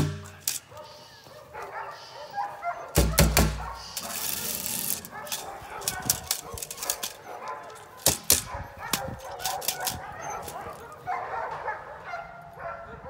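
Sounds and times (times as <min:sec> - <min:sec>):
sharp knocks: 0:00.0 - 0:00.4, 0:03.0 - 0:03.8
puppy barking: 0:00.6 - 0:13.0.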